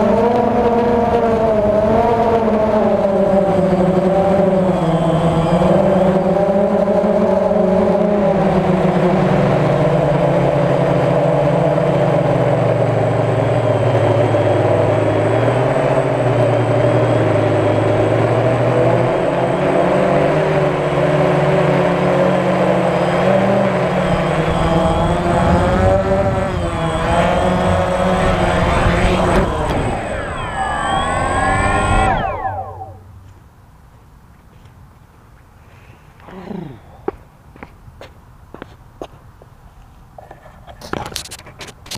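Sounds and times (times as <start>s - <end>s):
drone propellers whining: 0.0s - 33.3s.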